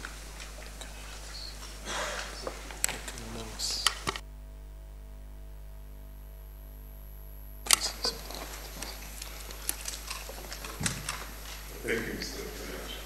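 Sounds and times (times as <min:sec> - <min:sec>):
electrical hum: 0:00.0 - 0:13.0
sharp click: 0:07.6 - 0:11.3
light clicks and rustles: 0:07.7 - 0:11.7.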